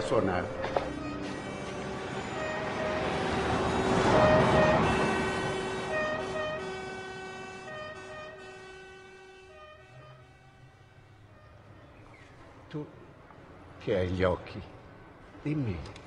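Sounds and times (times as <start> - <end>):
rushing swell: 0.0 - 7.5
bagpipes playing: 0.0 - 11.8.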